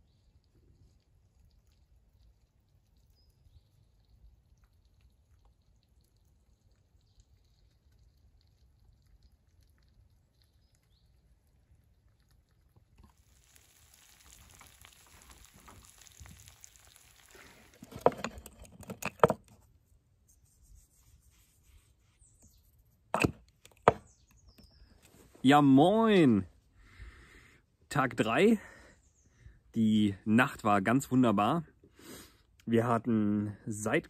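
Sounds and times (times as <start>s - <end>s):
eggs and bacon sizzling in a pan: 11.8s - 18.3s
utensil knocking and scraping a pan: 17.8s - 19.6s.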